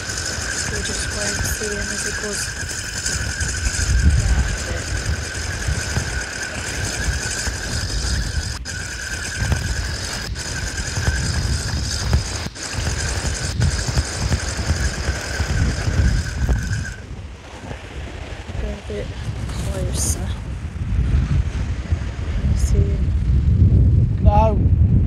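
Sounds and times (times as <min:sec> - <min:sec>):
high-pitched whine: 0:00.0 - 0:17.2
wind buffeting microphone: 0:00.0 - 0:25.0.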